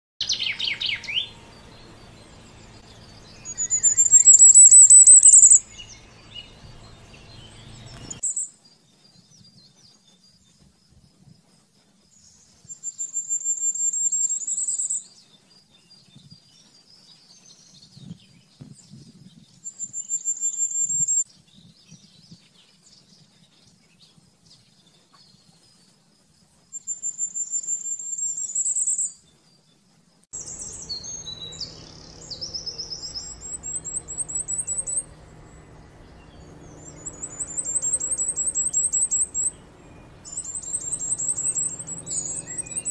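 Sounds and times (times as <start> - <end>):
low background hum: 0.2 - 8.2, 30.4 - 42.9
bird singing high thin notes: 0.2 - 8.4, 30.4 - 42.9.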